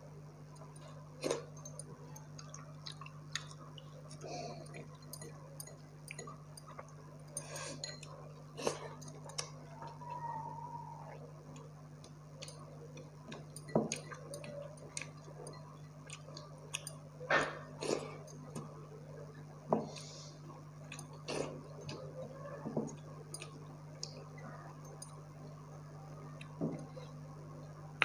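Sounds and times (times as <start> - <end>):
person chewing food: 0.6 - 10.3, 11.0 - 18.7, 19.8 - 22.2, 22.9 - 25.2.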